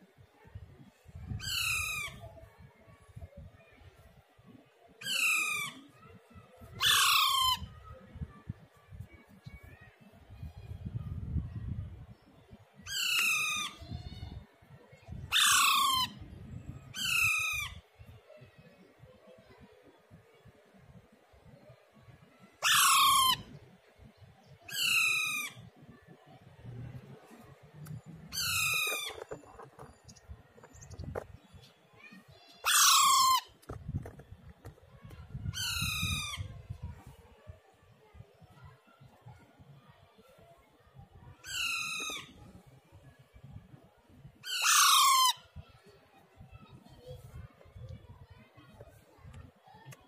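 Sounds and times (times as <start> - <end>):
parakeet squawking: 28.3 - 30.0, 32.6 - 33.6.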